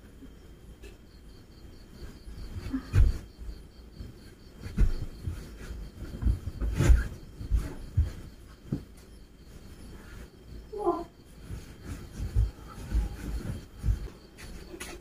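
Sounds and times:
cloth rustling: 1.9s - 15.0s
dull thumps and knocks: 2.5s - 9.2s, 11.4s - 15.0s.

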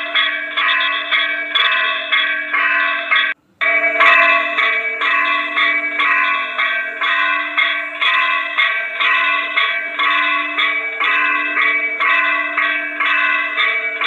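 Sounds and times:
bells ringing: 0.0s - 14.0s.

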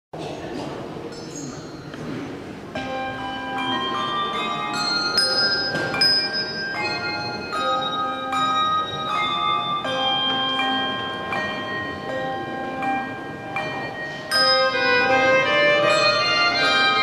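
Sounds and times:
handbell choir ringing chords: 2.8s - 17.0s.

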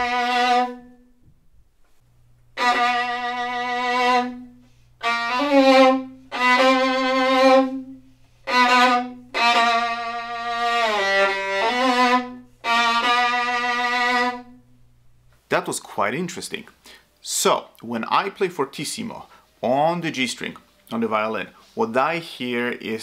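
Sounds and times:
solo violin bowed notes: 0.0s - 1.2s, 2.5s - 14.6s.

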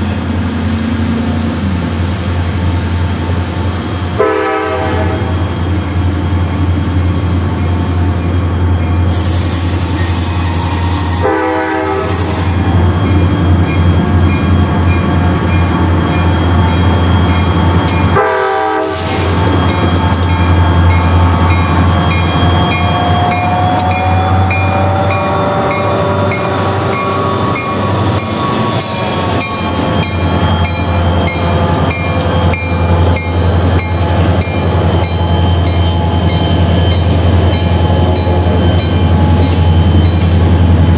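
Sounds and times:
diesel locomotives droning: 0.0s - 40.9s
steel wheels squealing on rails: 0.0s - 40.9s
train horn: 4.2s - 5.4s, 10.3s - 12.6s, 18.1s - 19.1s, 23.8s - 28.0s.

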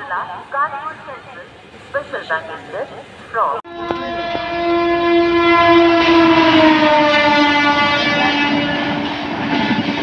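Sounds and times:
train rumbling on track: 3.0s - 10.0s
locomotive horn blast: 3.7s - 10.0s.

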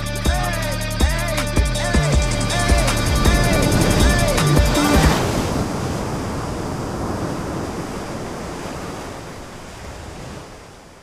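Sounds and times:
steady rushing noise: 1.5s - 10.0s.

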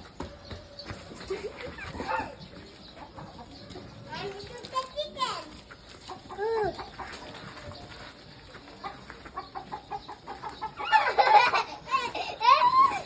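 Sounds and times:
chicken clucking: 0.2s - 13.0s
child crying out: 12.4s - 13.0s.

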